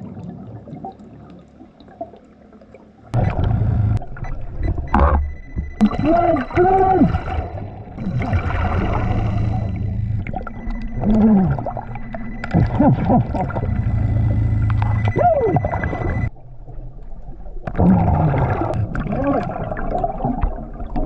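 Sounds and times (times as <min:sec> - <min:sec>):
gurgling bubbles: 0:00.0 - 0:21.0
low moans: 0:04.9 - 0:16.3
underwater diver breathing: 0:07.1 - 0:10.0.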